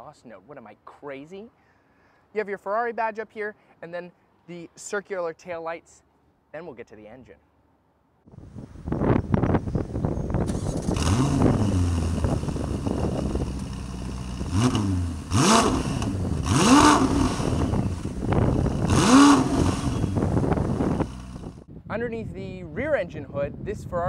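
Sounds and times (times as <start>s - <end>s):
wind buffeting microphone: 8.3s - 24.0s
sports car engine revving: 10.5s - 21.6s.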